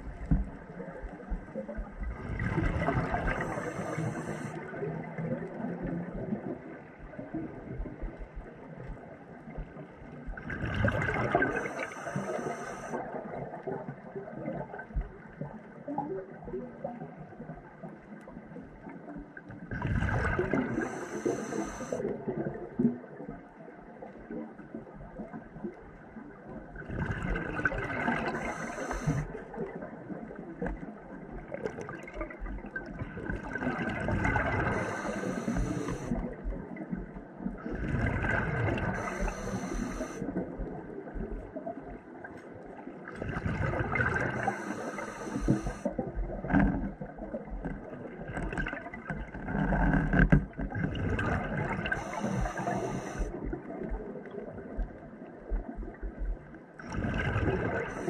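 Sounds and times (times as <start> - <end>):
gurgling exhaled bubbles: 2.0 - 6.8, 10.3 - 14.9, 19.7 - 23.0, 26.8 - 30.3, 31.4 - 41.9, 43.1 - 56.2, 56.8 - 58.0
diver breathing through regulator: 3.0 - 4.6, 11.3 - 13.0, 20.3 - 22.1, 28.0 - 29.3, 34.2 - 36.2, 38.7 - 40.3, 44.0 - 45.9, 51.8 - 53.4, 57.7 - 58.0
faint crackling: 3.3 - 4.6, 20.5 - 22.0, 28.0 - 29.2, 34.3 - 36.3, 38.8 - 40.4, 44.1 - 46.8, 51.8 - 53.5.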